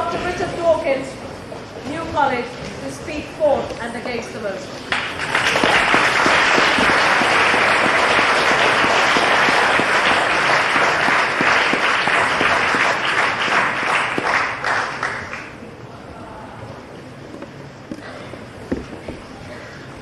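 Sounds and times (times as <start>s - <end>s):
audience applauding: 4.9s - 15.6s.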